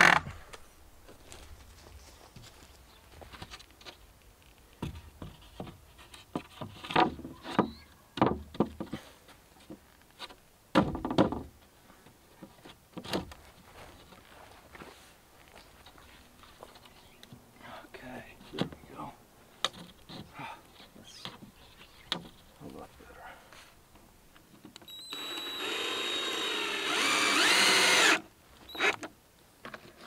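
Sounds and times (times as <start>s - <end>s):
wooden boards knocking: 10.8s - 11.5s.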